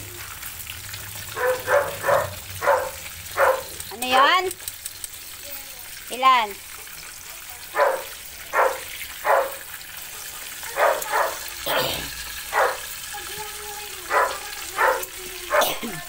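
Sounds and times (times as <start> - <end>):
fish sizzling in oil: 0.0 - 16.0
dog barking: 1.3 - 4.4, 7.7 - 9.7, 10.7 - 12.9, 14.1 - 16.0.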